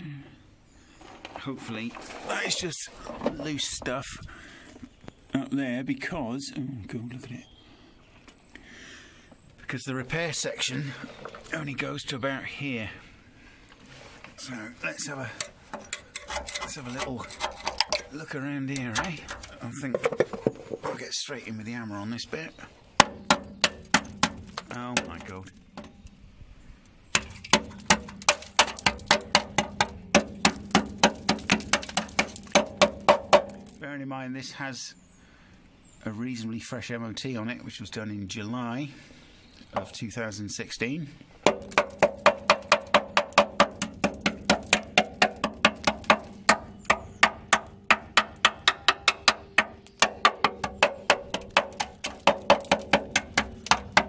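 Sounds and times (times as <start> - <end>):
hammer tapping on steel: 27.2 - 33.8, 41.5 - 54.0.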